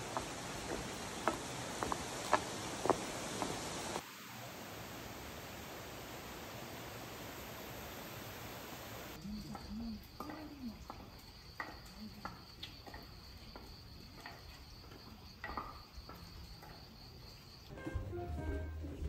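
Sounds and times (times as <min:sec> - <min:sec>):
even hiss: 0:00.0 - 0:10.8
insects trilling: 0:06.7 - 0:17.7.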